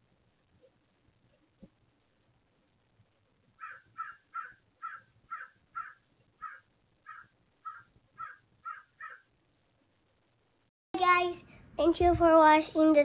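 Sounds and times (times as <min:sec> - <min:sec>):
bird short calls: 0:03.6 - 0:09.3.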